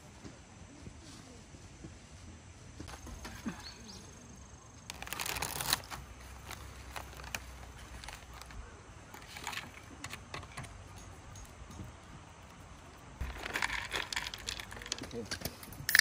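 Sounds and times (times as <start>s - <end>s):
rustling: 4.8s - 11.2s, 12.2s - 16.0s.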